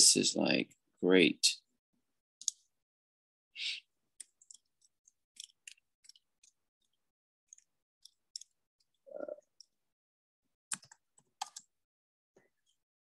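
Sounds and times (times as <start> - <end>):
typing on computer keyboard: 4.2 - 6.6, 10.7 - 11.7.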